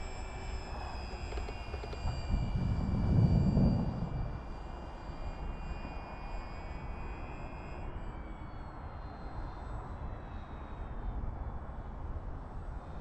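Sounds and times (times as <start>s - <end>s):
model plane motor whine: 0.0s - 13.0s
low rumble: 2.2s - 4.5s.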